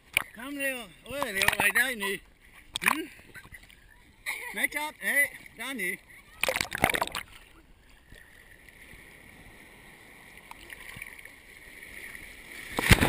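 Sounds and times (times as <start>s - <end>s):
muffled water sloshing: 5.2s - 13.0s
loud water splashing: 6.4s - 7.4s, 12.5s - 13.0s.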